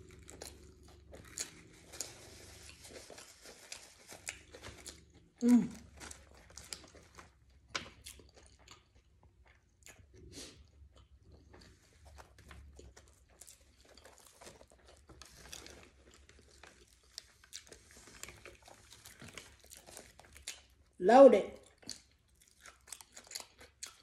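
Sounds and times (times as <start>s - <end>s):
chewing and crunching: 0.0s - 24.0s.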